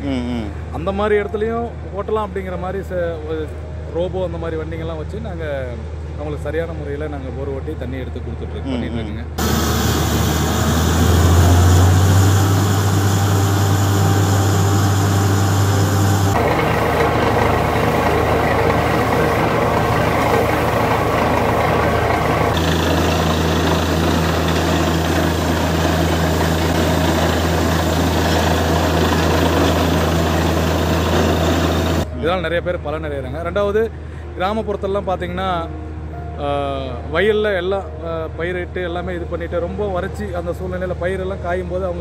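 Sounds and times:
drilling rig engine drone: 9.4s - 32.1s.

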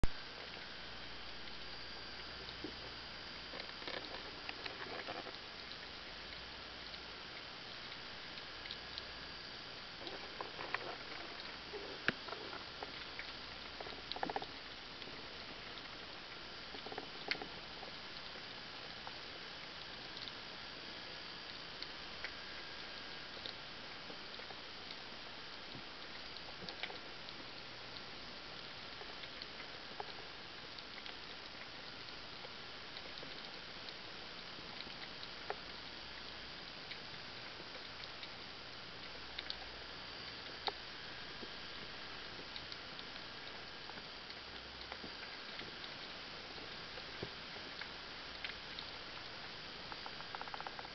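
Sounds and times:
sharp clicks underwater: 0.1s - 50.9s.

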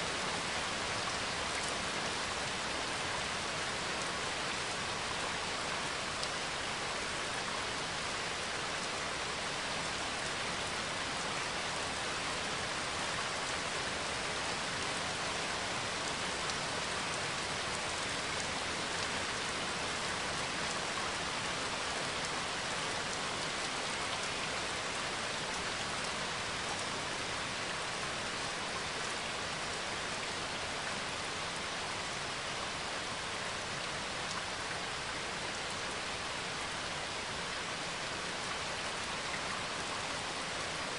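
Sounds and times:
steady rain hiss: 0.0s - 40.9s.

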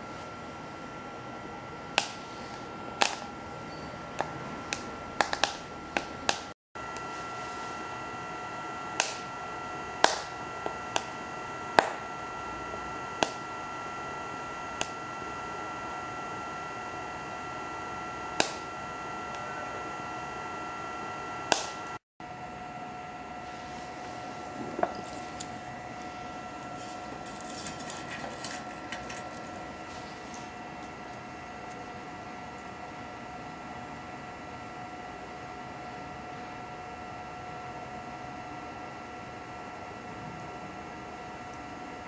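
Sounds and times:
stove fan whine: 0.0s - 42.0s
wood fire crackling: 23.4s - 34.6s.

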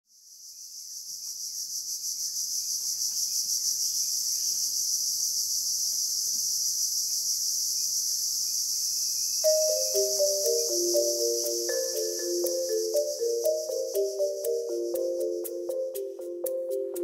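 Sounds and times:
insects shrilling: 0.5s - 17.0s.

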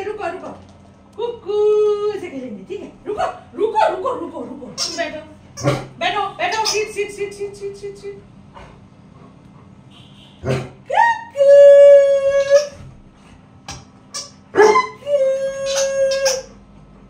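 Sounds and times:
dog howling: 11.0s - 12.8s, 14.6s - 16.6s.

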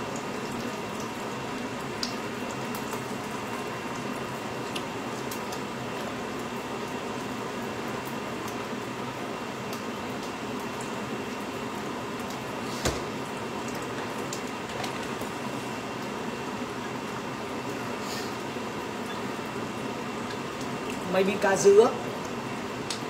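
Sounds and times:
covered pot hissing on stove: 12.6s - 13.2s, 17.9s - 18.4s.

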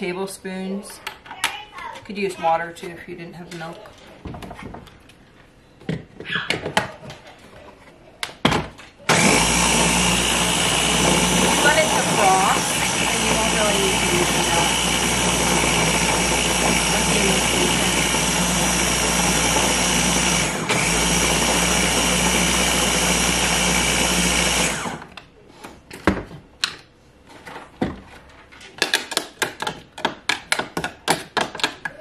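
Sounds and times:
electric blender running: 9.1s - 25.1s.

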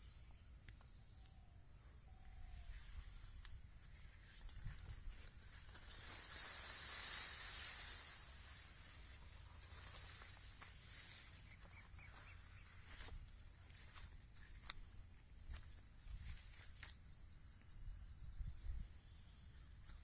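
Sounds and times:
leaves and stems rustling: 2.7s - 17.0s.

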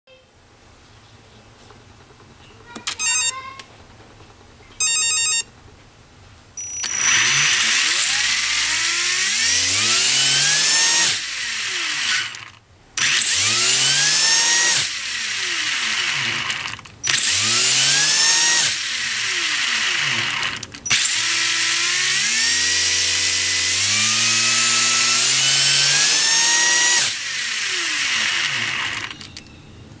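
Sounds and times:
electronic beeps: 4.8s - 5.5s, 6.6s - 7.2s
electric motor whining: 6.8s - 29.5s.

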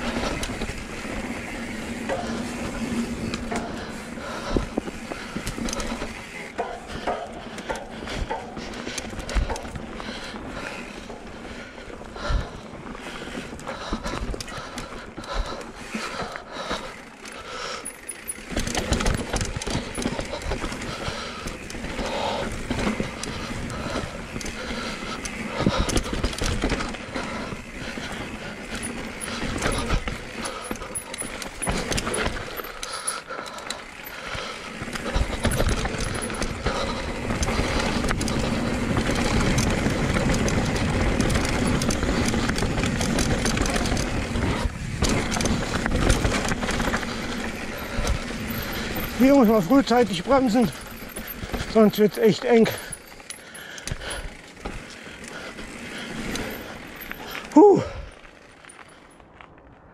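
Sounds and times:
bike tyres crunching over dirt: 0.0s - 59.9s
chain and frame clattering: 17.2s - 21.9s, 28.6s - 34.2s, 34.9s - 55.0s, 56.2s - 59.2s.

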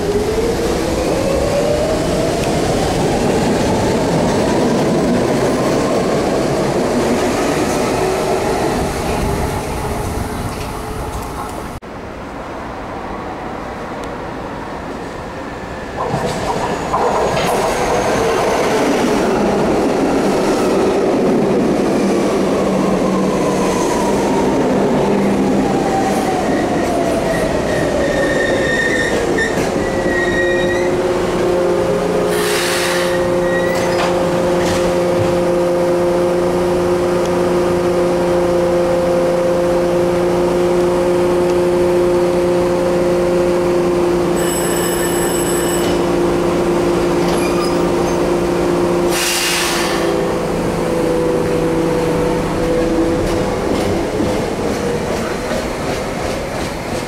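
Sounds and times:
falling train whine: 0.0s - 57.0s
train wheels rumbling: 49.1s - 57.0s.

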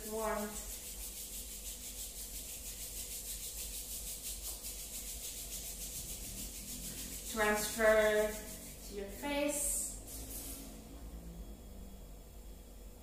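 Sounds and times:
palms rubbing together: 0.0s - 10.8s.

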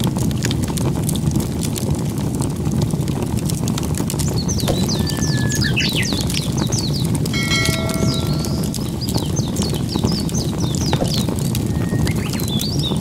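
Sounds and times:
fire crackling and popping: 0.0s - 13.0s
birds chirping: 4.2s - 13.0s.

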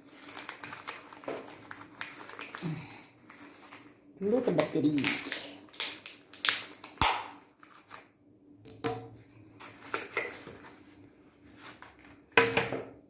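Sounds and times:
objects knocking and clattering: 8.7s - 9.2s, 12.4s - 13.0s.

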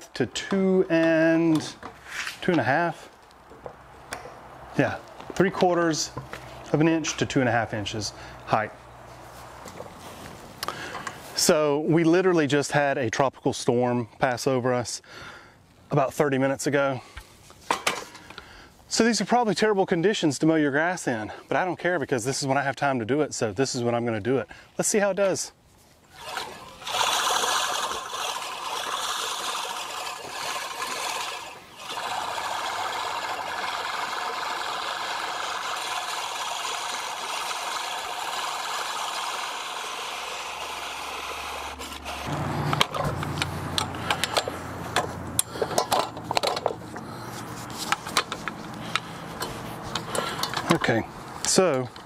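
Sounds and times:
reel mower whirring: 26.1s - 51.0s
mower clicks and knocks: 42.3s - 46.8s, 47.8s - 50.9s.

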